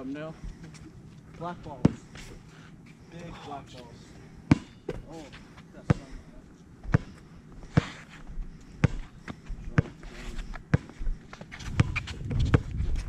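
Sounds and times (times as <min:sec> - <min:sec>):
basketball bouncing on hard court: 0:04.5 - 0:05.1, 0:11.7 - 0:12.7
shuffling feet: 0:07.6 - 0:13.0.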